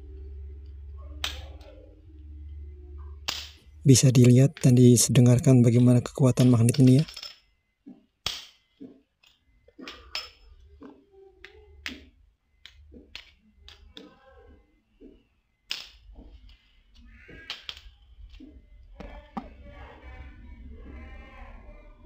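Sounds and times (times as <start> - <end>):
coins clicking onto a magnet: 6.4 - 7.4.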